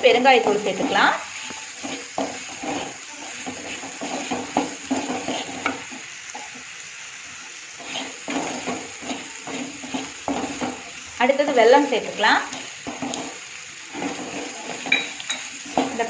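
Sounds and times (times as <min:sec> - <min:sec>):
oil sizzling: 0:00.0 - 0:16.0
spatula scraping a pan: 0:00.4 - 0:06.7, 0:07.8 - 0:11.0, 0:12.0 - 0:16.0.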